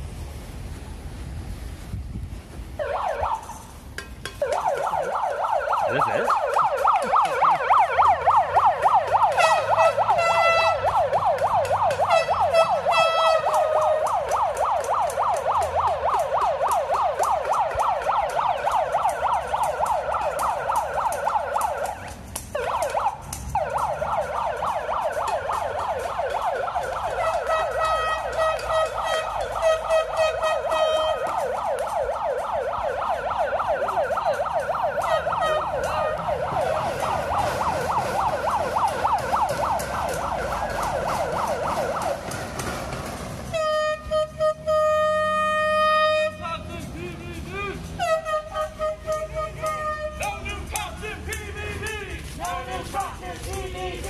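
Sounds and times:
electronic siren yelping: 2.8s - 3.6s, 4.4s - 42.4s, 47.6s - 50.4s.

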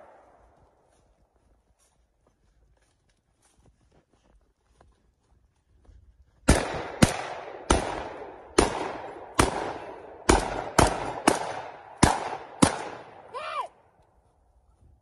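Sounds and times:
gunshots with ringing echo: 6.5s - 13.3s.

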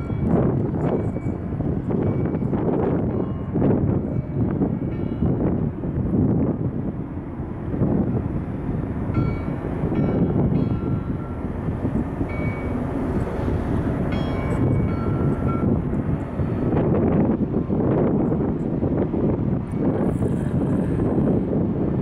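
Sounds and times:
wind buffeting microphone: 0.0s - 22.0s
buoy bell ringing: 14.1s - 15.8s.

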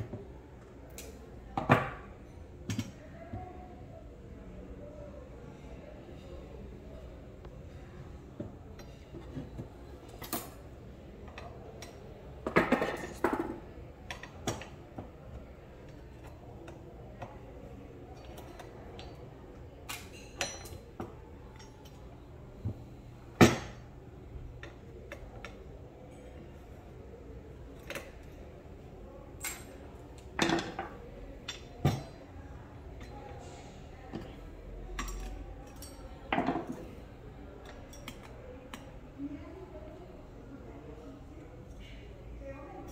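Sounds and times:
metal tools clinking and clanking: 33.0s - 37.0s.

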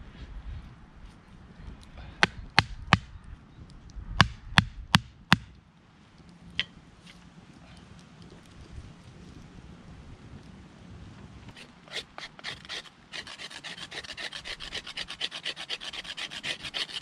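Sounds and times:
wood being chopped: 2.2s - 3.1s, 4.2s - 5.6s.

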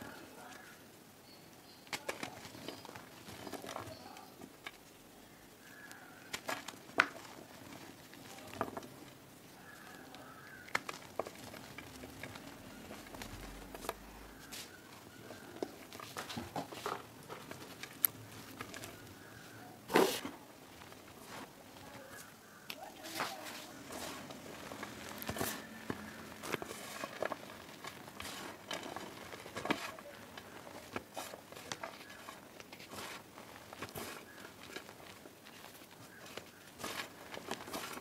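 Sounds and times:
chalk crunching in a hand: 23.0s - 38.0s.

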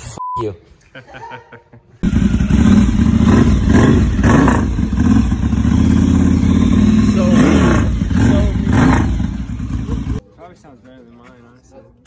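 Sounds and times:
motorcycle engine running: 2.0s - 10.2s.

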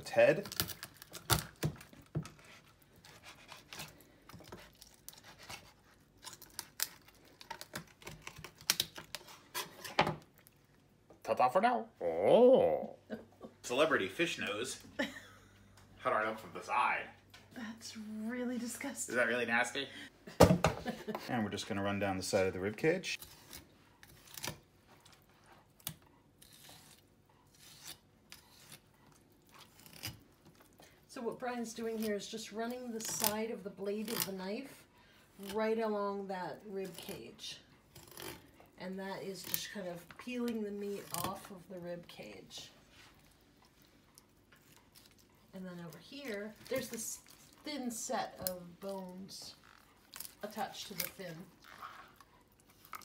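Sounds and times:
knife cutting through fish bone: 0.5s - 9.9s.

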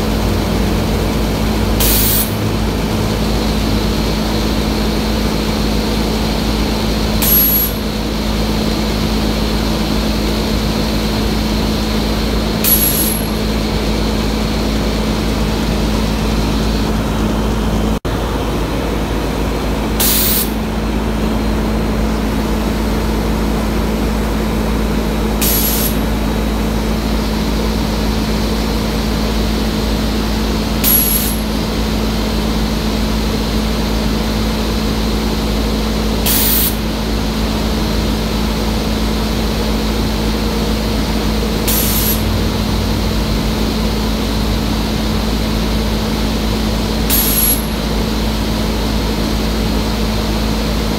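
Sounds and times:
hum and rush of air: 0.0s - 50.9s
compressed air hisses: 25.4s - 26.1s, 36.3s - 36.8s, 41.6s - 42.3s, 47.1s - 47.7s.

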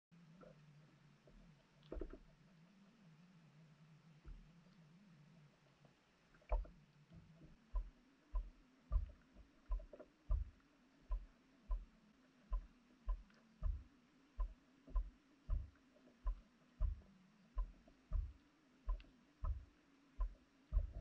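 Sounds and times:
muffled dull thumps with clicks: 1.2s - 2.4s, 4.2s - 4.6s, 5.8s - 21.0s.

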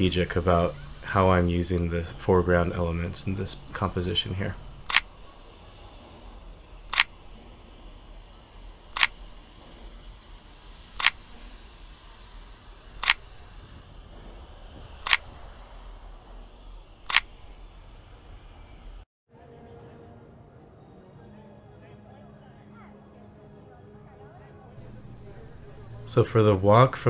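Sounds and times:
faint steady hiss: 0.0s - 19.1s, 24.8s - 27.0s
camera shutter clicks: 4.8s - 5.1s, 6.9s - 7.2s, 9.0s - 9.3s, 11.0s - 11.3s, 13.0s - 13.3s, 15.0s - 15.4s, 17.1s - 17.4s.

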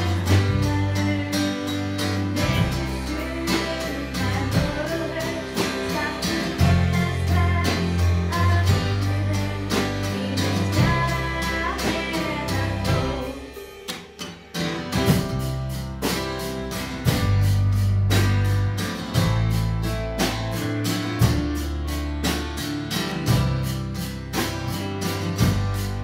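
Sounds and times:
woman singing: 0.0s - 13.8s
band playing: 0.0s - 26.0s.

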